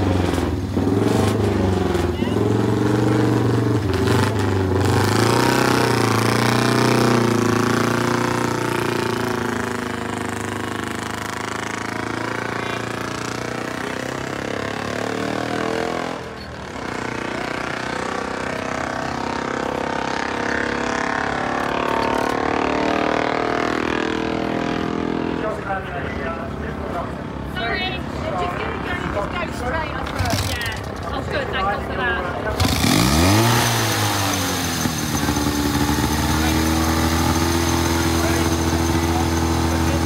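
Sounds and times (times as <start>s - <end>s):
two-stroke engine running: 0.0s - 15.6s, 29.8s - 31.8s, 32.4s - 40.0s.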